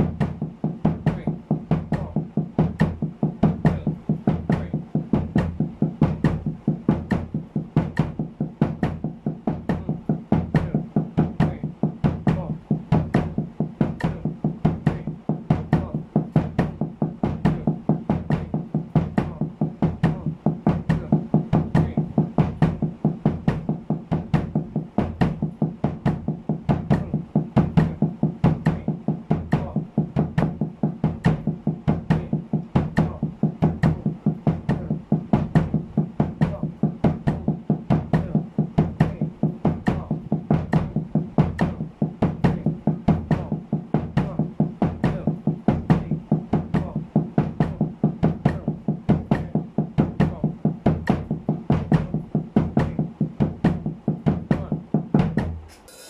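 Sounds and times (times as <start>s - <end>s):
bass drum kicks: 0.0s - 55.8s
muffled snare drum strokes: 0.0s - 56.0s.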